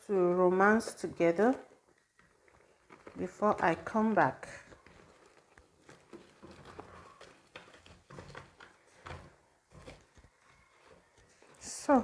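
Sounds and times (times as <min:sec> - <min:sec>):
plastic cling film crinkling: 0:00.0 - 0:12.0.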